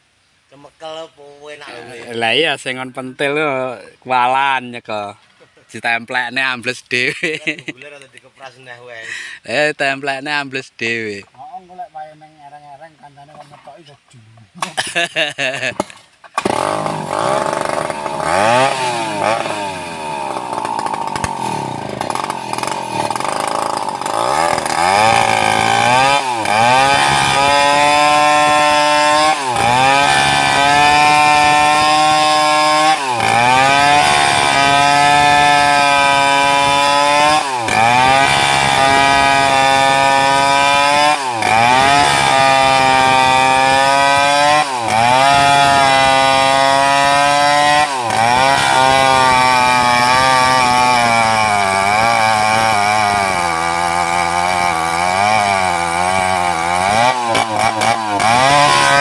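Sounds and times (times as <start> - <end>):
chainsaw cutting through log: 14.6 - 59.0.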